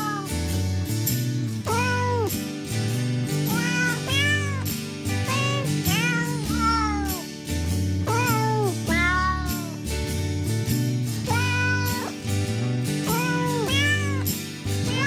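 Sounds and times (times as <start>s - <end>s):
cat meows set to a tune: 0.0s - 0.8s, 1.6s - 2.4s, 3.4s - 7.3s, 8.0s - 9.9s, 11.3s - 12.2s, 13.0s - 15.0s
instrumental backing music: 0.0s - 15.0s.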